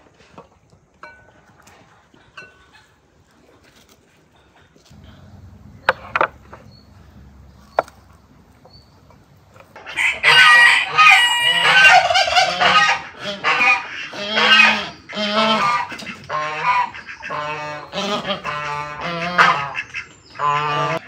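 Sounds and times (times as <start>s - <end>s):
geese honking: 5.0s - 21.0s.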